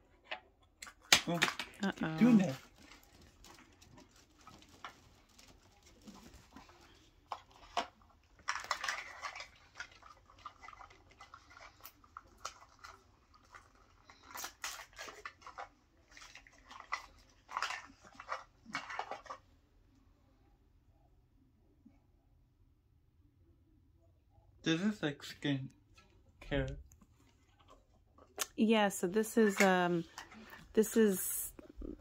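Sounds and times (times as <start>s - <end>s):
plastic packaging crinkling: 1.5s - 19.3s.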